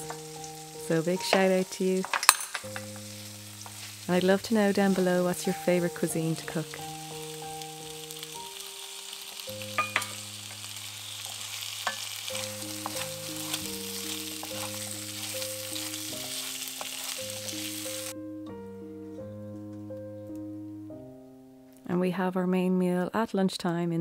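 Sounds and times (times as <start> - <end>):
potatoes sizzling in a pot: 0.0 - 18.2
soft background music: 0.0 - 23.2
wooden spoon clacking on pot: 9.8 - 10.2.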